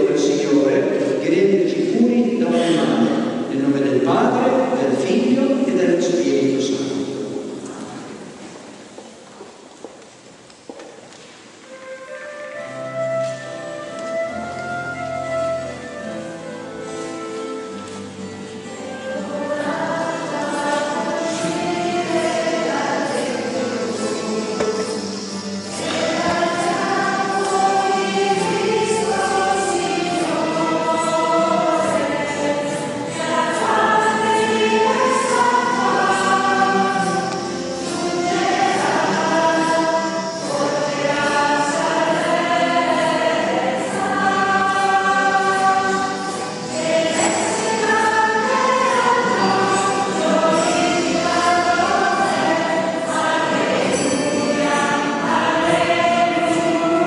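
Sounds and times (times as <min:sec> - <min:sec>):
group singing a hymn: 0:00.0 - 0:05.8, 0:18.6 - 0:57.0.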